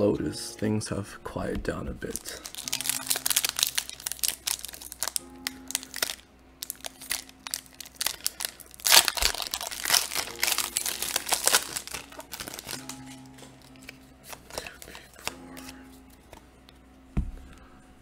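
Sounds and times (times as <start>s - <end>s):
foil wrapper crinkling: 2.0s - 15.7s.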